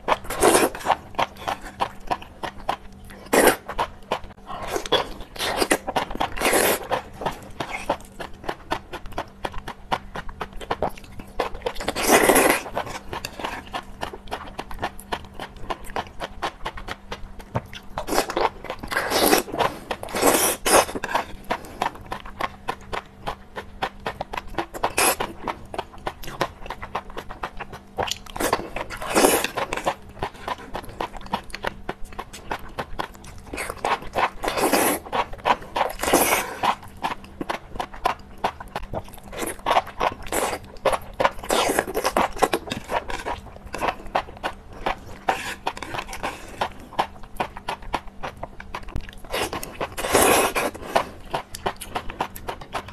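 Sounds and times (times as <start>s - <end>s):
wet chewing and crunching: 0.0s - 52.9s
slurping: 49.3s - 51.5s.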